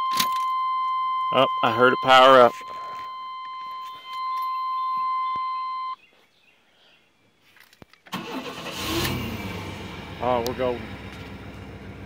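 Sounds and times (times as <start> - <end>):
warning buzzer high tone: 1.0 - 6.0
engine cranking and starting: 8.1 - 12.0.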